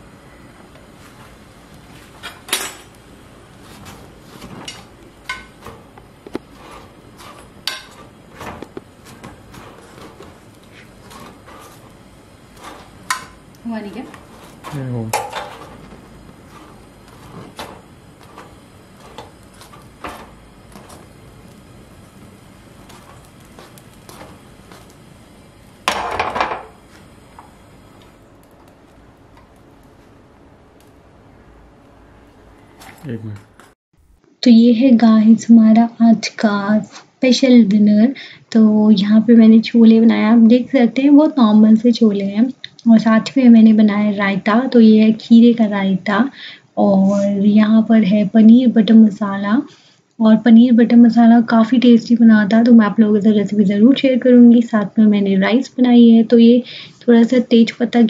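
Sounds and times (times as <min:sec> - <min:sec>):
utensils clattering: 0:02.1 - 0:03.0, 0:03.6 - 0:21.1
metal cookware clinking: 0:02.2 - 0:03.0, 0:04.6 - 0:05.8, 0:07.2 - 0:08.6, 0:12.7 - 0:13.4, 0:14.1 - 0:15.9
metal utensils tapping iron griddle: 0:02.2 - 0:03.0, 0:03.8 - 0:21.5.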